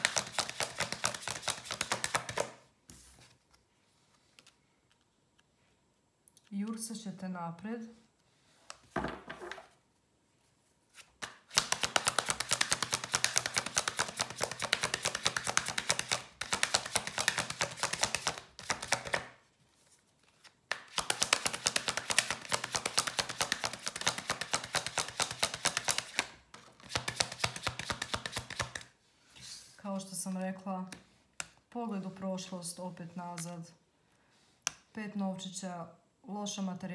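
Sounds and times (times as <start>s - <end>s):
cards being shuffled: 0.0s - 5.1s, 10.9s - 28.9s.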